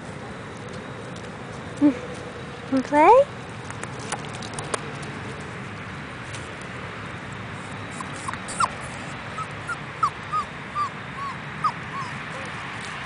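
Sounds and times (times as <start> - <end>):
puppy whimpering: 7.9 - 12.6.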